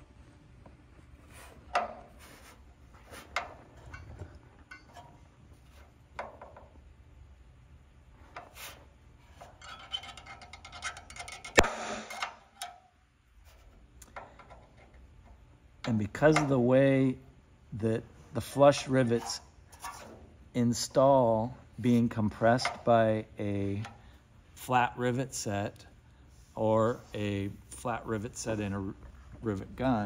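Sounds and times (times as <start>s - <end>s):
tool rubbing on aluminium: 8.3s - 12.7s, 18.7s - 20.4s
center punch sharp snap: 11.6s - 12.4s.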